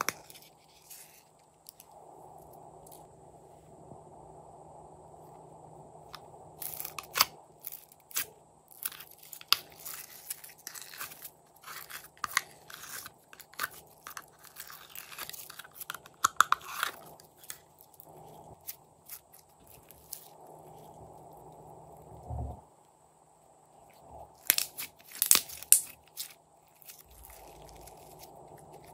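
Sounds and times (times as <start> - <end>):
slime crackling and popping: 6.6 - 20.4, 24.4 - 28.9.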